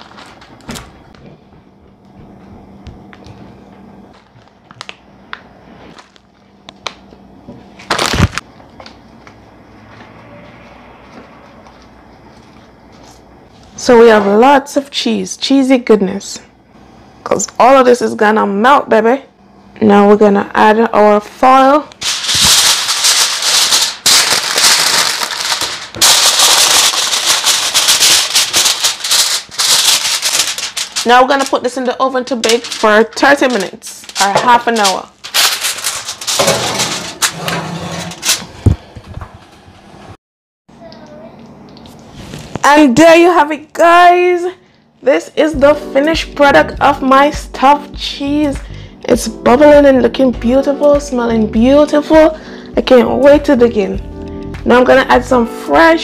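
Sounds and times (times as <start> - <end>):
plastic bag crinkling: 0.0 - 0.7, 7.8 - 8.4, 22.0 - 37.3.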